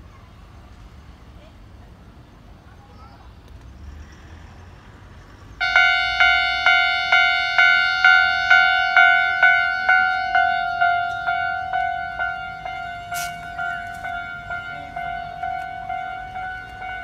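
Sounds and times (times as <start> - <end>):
level-crossing warning bell: 5.6 - 17.0.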